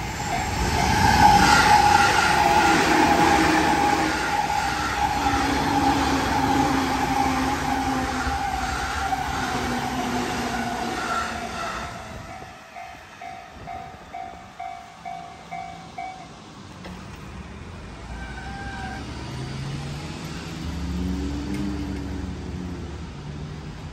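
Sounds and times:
level-crossing warning bell dinging: 0.0 - 16.7
electric train passing: 0.0 - 23.9.

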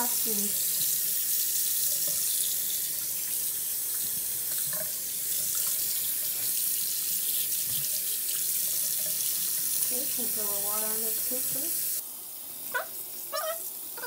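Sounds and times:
tap water splashing into sink: 1.7 - 11.8.

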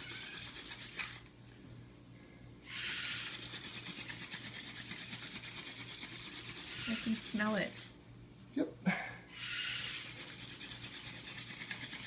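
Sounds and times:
scratchy wood-on-wood rubbing: 2.9 - 7.9, 9.8 - 12.0.

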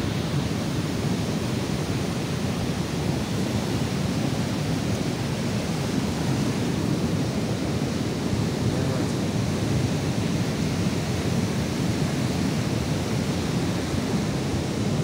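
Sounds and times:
river rushing: 0.0 - 15.0.

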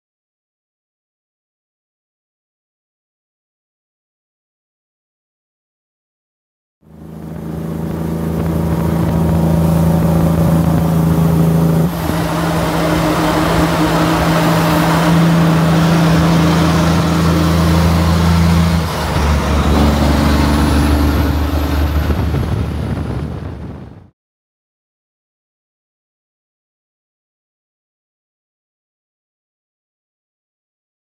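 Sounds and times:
diesel truck engine running: 6.9 - 24.1.

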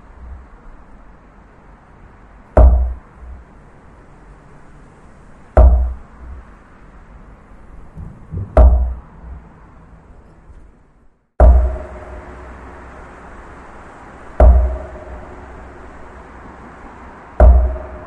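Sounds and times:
steady low rumble: 0.0 - 18.0
heavy ringing knocks: 2.6 - 3.4, 5.6 - 6.4, 7.9 - 9.4, 11.4 - 12.8, 14.3 - 15.8, 17.4 - 18.0.

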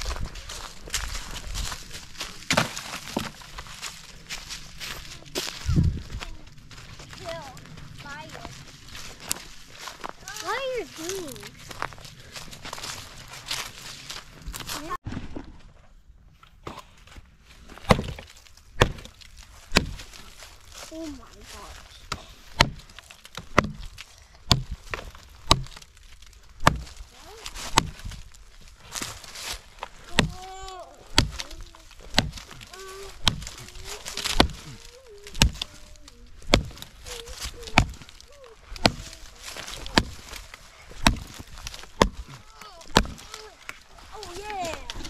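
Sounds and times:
axe chopping wood: 2.4 - 3.4, 17.8 - 20.2, 22.1 - 26.0, 26.6 - 28.2, 30.1 - 35.8, 36.4 - 43.5.

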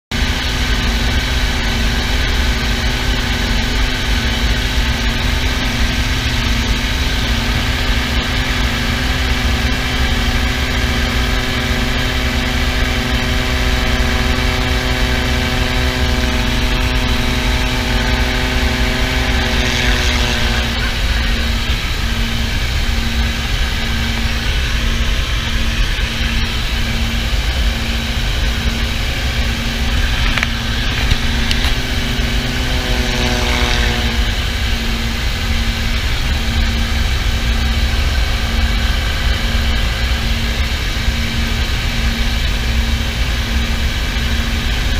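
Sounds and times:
low regular throb: 0.1 - 44.9
propeller plane engine droning: 0.1 - 44.9.

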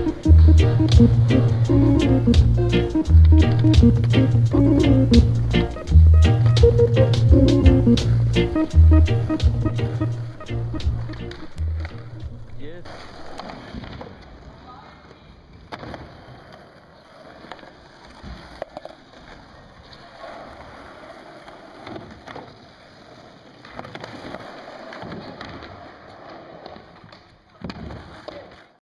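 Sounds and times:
skateboards rolling on asphalt: 7.5 - 28.8
skateboards clacking on wooden ramp: 15.6 - 28.8.

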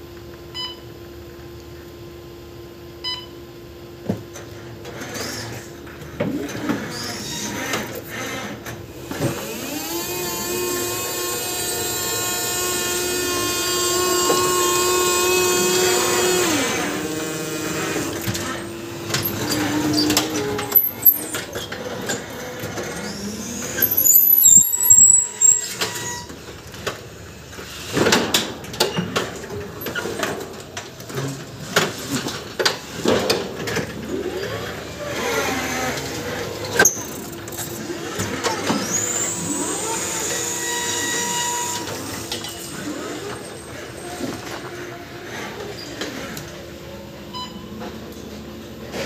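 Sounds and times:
electric motor whine: 8.1 - 25.0, 37.8 - 43.5
high squeals: 9.7 - 26.4, 38.5 - 44.7.

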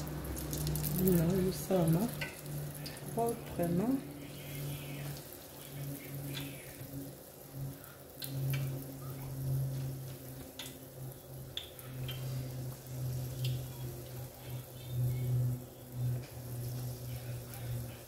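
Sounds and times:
hot oil sizzling: 0.0 - 18.0
low hum: 0.0 - 18.0.

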